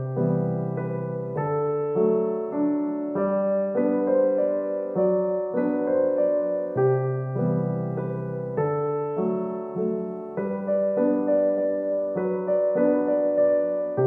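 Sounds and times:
gentle piano tune: 0.0 - 14.0.

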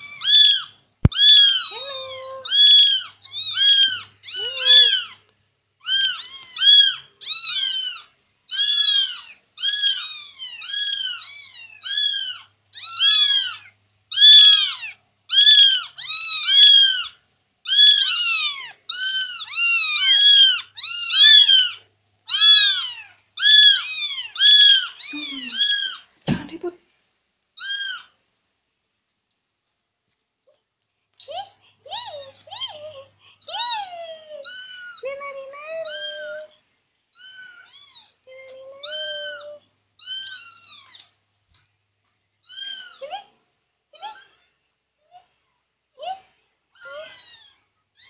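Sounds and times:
kitten mewing: 0.0 - 5.2, 17.7 - 26.0.

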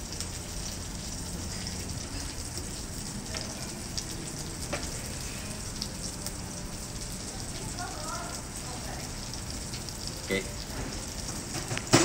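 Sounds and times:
food sizzling in a hot pan: 0.0 - 12.0.

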